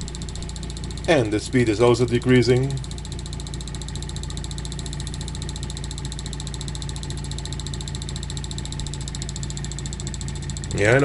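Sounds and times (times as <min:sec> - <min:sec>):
motor hum: 0:00.0 - 0:11.0
pulse motor ticking: 0:00.0 - 0:11.0.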